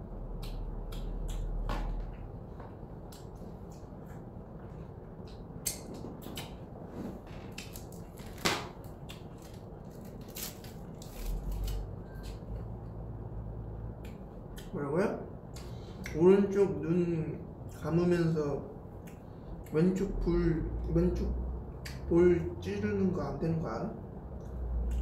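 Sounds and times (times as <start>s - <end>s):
plastic wrapper crinkling: 7.6s - 11.8s.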